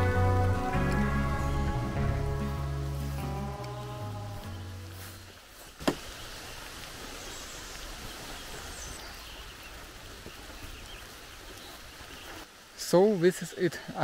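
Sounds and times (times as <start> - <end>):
background music: 0.0 - 5.2
outdoor forest ambience: 0.0 - 14.0.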